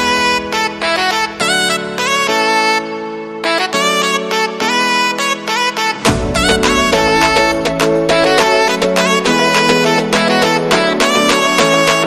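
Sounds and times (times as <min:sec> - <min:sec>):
instrumental background music: 0:00.0 - 0:12.0
deep bass note: 0:06.0 - 0:08.6.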